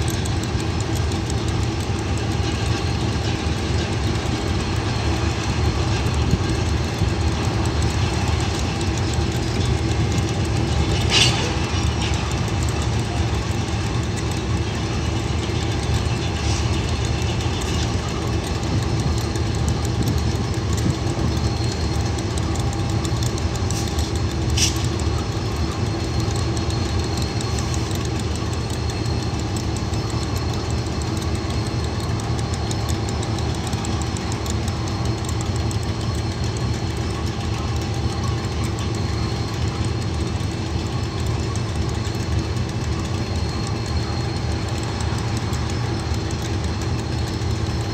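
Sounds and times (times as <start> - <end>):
diesel locomotive engine idling: 0.0 - 47.9.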